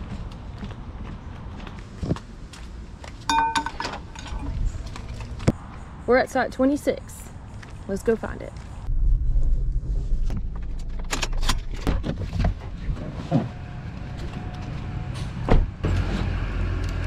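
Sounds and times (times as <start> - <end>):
car rumbling: 8.4 - 17.0.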